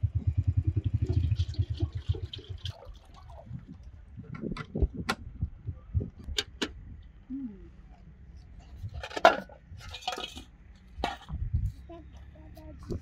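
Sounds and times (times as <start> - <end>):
metal kettle lid and pots clinking: 9.0 - 11.3.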